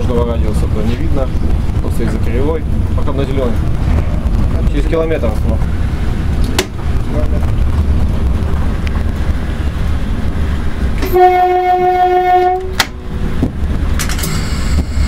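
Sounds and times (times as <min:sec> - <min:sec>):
train running rumble: 0:00.0 - 0:15.0
train horn blast: 0:11.0 - 0:13.1.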